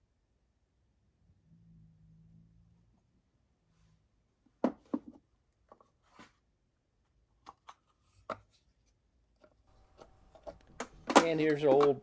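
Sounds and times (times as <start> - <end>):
wooden case clicks: 9.9 - 12.0.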